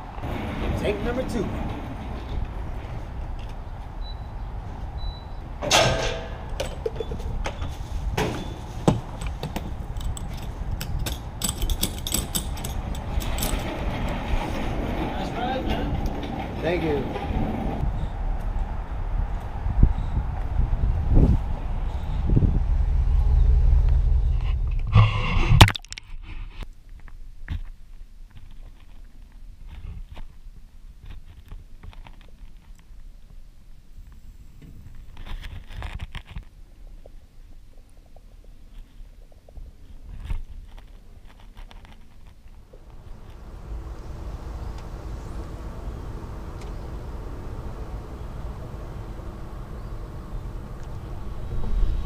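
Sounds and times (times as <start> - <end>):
fuel pump keypad beeps: 4.0 - 4.3, 5.0 - 5.4
loud low rumble: 17.4 - 25.7, 42.8 - 52.0
steady low hum: 17.4 - 25.8, 42.6 - 52.0.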